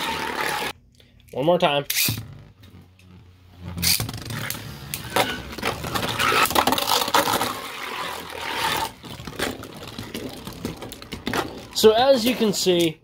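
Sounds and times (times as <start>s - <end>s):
grinding scrape: 0.0s - 0.7s, 3.8s - 10.6s.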